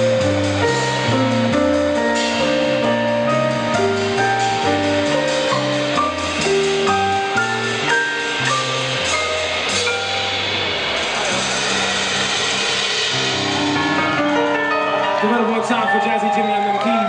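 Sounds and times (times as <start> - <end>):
bass line: 0.0 - 15.5
drum kit: 0.0 - 17.0
keyboard: 0.0 - 17.0.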